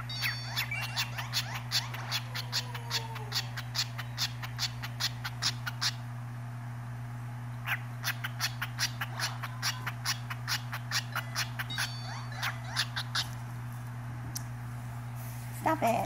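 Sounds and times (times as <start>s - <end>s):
cockatiel harsh chirps: 0.0s - 2.7s, 3.3s - 6.0s, 7.7s - 13.3s.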